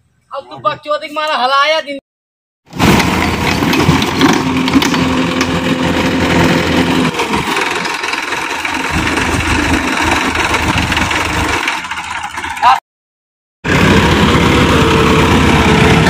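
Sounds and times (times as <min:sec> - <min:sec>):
tractor diesel engine running: 0:02.7 - 0:12.8, 0:13.7 - 0:16.0.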